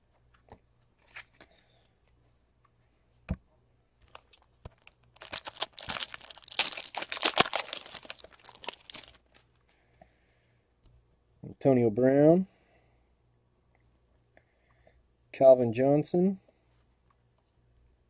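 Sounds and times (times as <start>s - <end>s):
foil wrapper tearing and crinkling: 4.2s - 9.3s.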